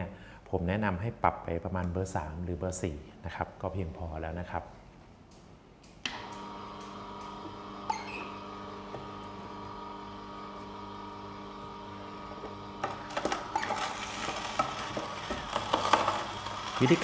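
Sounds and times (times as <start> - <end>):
juicer motor humming: 6.1 - 17.0.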